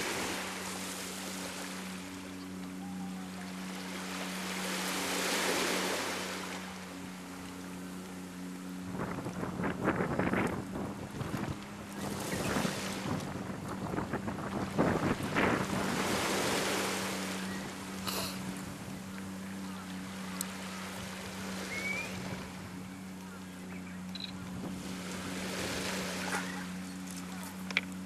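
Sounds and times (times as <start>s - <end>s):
surf on a pebble beach: 0.0s - 7.0s, 9.0s - 28.0s
steady low hum: 0.0s - 28.0s
wind on microphone: 8.8s - 19.1s, 20.7s - 23.0s, 24.1s - 26.9s.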